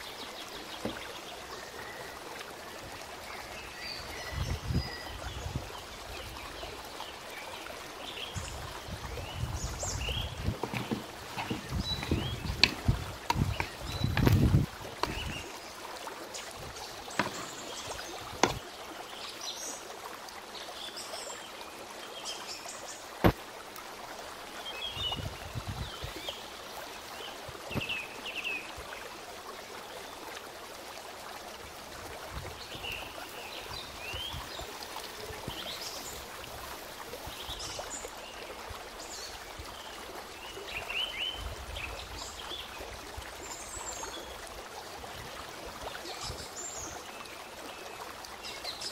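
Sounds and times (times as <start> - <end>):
running water trickling: 0.0 - 48.9
sharp clicks and knocks: 10.5 - 15.3, 17.2 - 17.6, 18.4 - 18.6.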